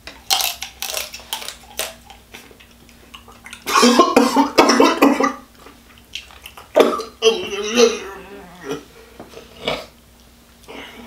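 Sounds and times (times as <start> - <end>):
wet smacking chewing: 0.2 - 3.7, 5.6 - 6.8.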